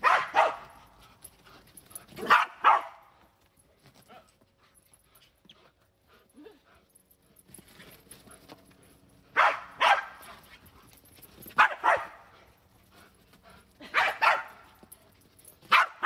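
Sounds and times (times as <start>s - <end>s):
dog barking: 0.0s - 0.8s, 2.2s - 3.0s, 9.4s - 10.3s, 11.6s - 12.3s, 14.0s - 14.6s, 15.7s - 16.0s.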